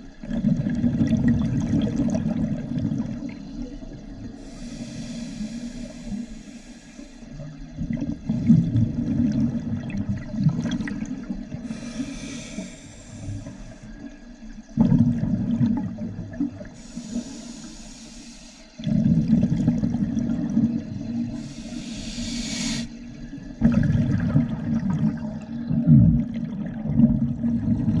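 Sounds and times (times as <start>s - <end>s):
exhaled bubbles underwater: 0.0s - 18.0s, 18.7s - 28.0s
scuba regulator inhale hiss: 4.3s - 7.3s, 11.6s - 14.0s, 16.8s - 18.8s, 21.3s - 23.1s.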